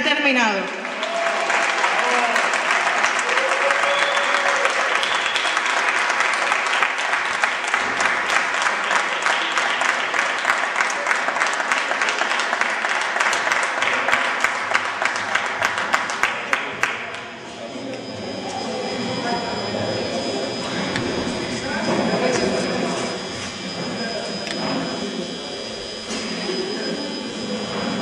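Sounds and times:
audience applauding: 0.7s - 17.4s
voices: 16.2s - 28.0s.

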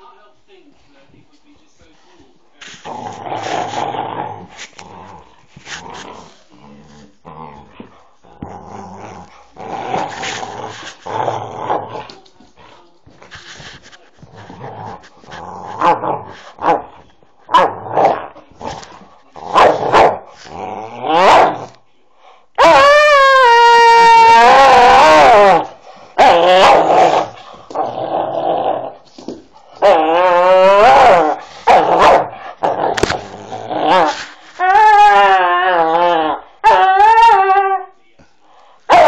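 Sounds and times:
dog growling in play: 2.6s - 21.8s, 24.3s - 36.4s.

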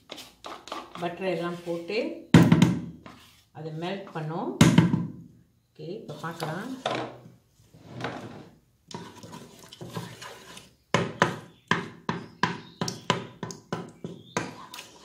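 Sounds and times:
wooden spatula scraping pot: 0.0s - 2.1s, 3.0s - 4.2s, 6.1s - 11.6s, 14.0s - 15.0s.

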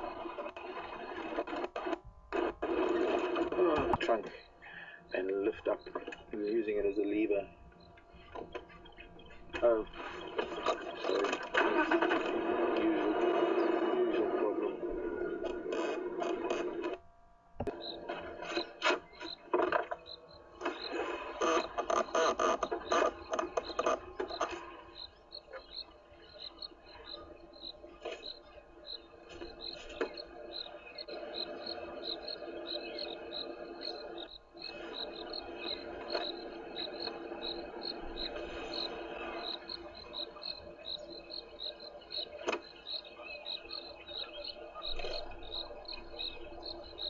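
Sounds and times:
insect chirping: 17.7s - 47.0s.

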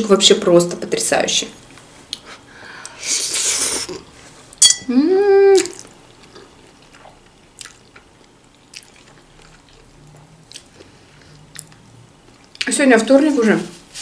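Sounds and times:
woman humming mmm: 4.9s - 5.8s
quiet chewing: 5.6s - 12.7s.

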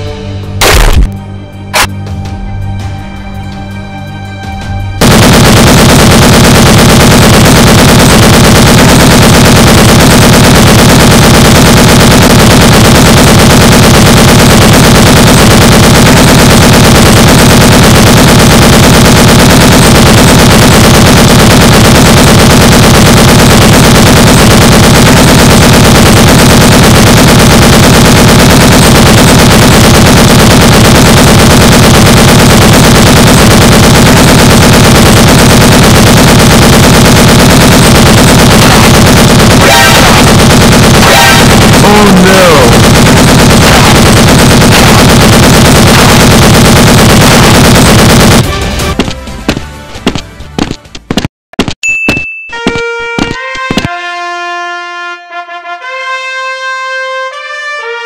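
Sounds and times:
rapid machine-gun fire: 0.6s - 1.1s, 5.0s - 48.6s.

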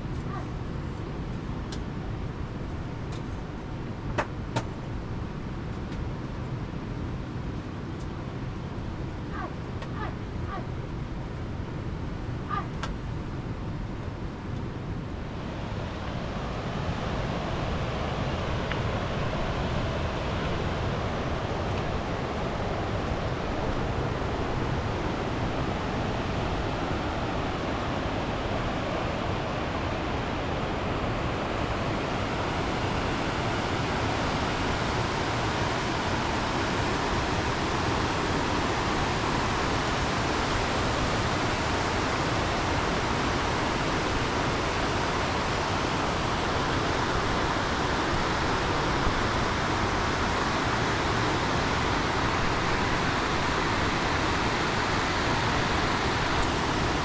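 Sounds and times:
river rushing over rocks: 15.2s - 57.0s.

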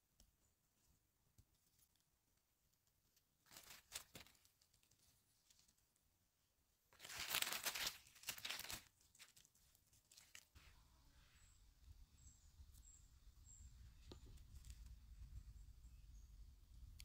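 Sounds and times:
leaf litter rustling and crackling: 3.4s - 5.6s, 7.0s - 10.6s.

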